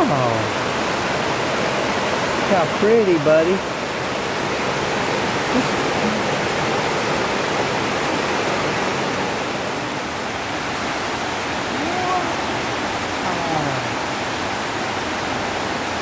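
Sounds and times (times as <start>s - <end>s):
water rushing over rapids: 0.0s - 16.0s.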